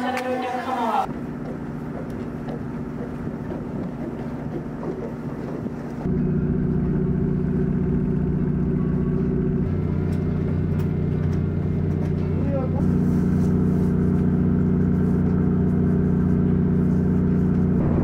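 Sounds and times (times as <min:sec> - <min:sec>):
ship diesel engine droning: 0:00.0 - 0:18.0.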